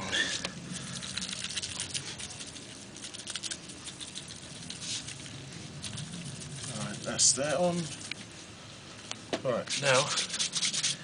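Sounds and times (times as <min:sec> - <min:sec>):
seasoning crackling on chicken: 0:00.6 - 0:08.3.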